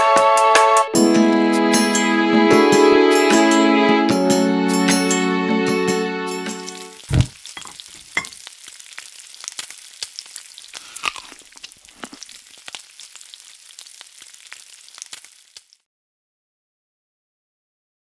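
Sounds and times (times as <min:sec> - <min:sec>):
fat sizzling in a frying pan: 0:06.5 - 0:15.9
sharp pops of fat: 0:07.0 - 0:08.0
thump: 0:07.1 - 0:07.4.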